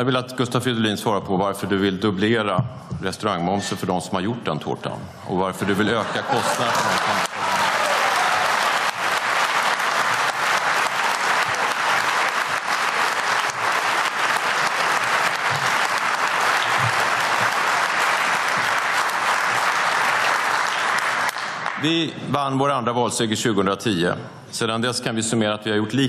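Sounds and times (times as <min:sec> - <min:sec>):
crowd applauding: 0:05.7 - 0:22.0.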